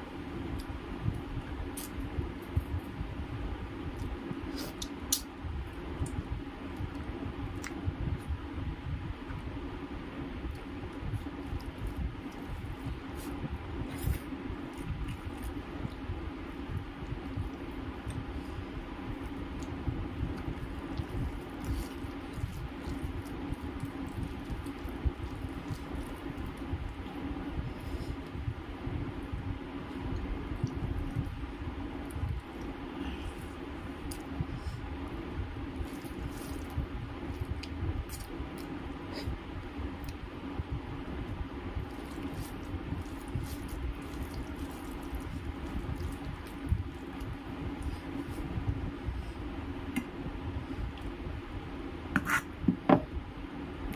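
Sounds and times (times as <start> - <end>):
low background hum: 0.0 - 53.9
soft wet squishing of food: 10.4 - 28.4, 29.2 - 35.0, 35.6 - 40.4, 41.2 - 50.1
fingers squishing rice: 41.3 - 48.5.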